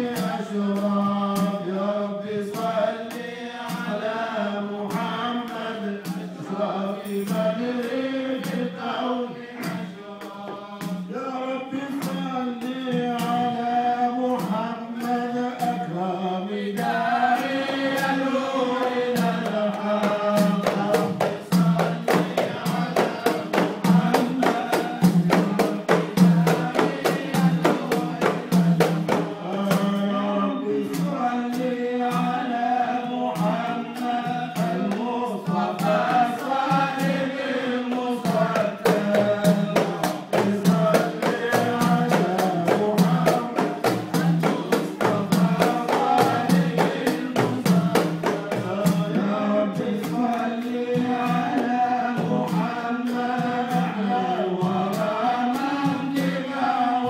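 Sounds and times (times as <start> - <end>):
frame drums beating: 0.0 - 57.0
men chanting a hymn: 0.0 - 57.0.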